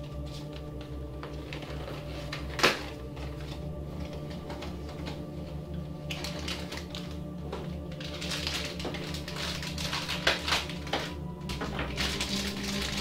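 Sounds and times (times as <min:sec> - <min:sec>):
low hum: 0:00.0 - 0:13.0
packaging snapping: 0:00.1 - 0:05.3, 0:06.0 - 0:13.0
packaging crinkling: 0:06.0 - 0:13.0.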